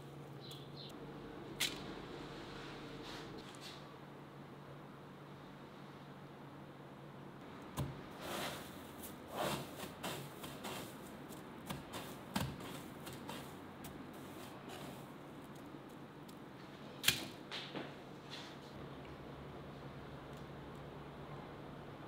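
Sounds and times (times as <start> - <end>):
faint hum: 17.7 - 22.0.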